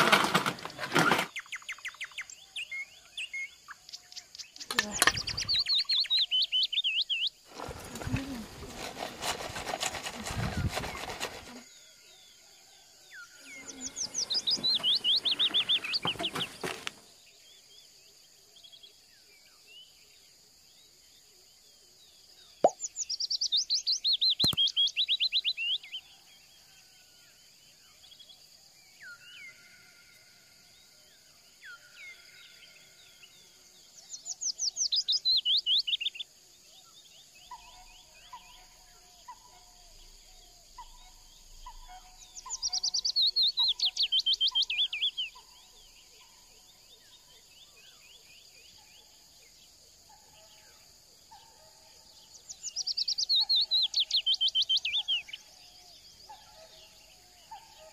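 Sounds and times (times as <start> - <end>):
songbird trilling: 1.1 - 8.6, 13.4 - 16.7, 22.6 - 26.0, 40.7 - 45.5, 52.6 - 55.4.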